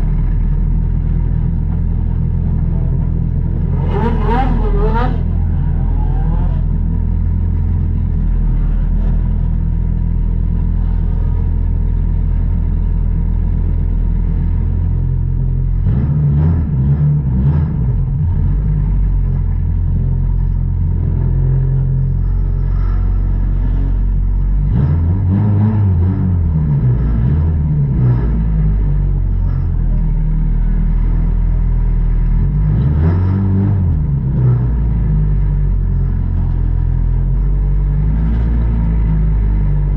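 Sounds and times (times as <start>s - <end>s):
race car engine idling: 0.0s - 15.9s, 17.2s - 24.7s.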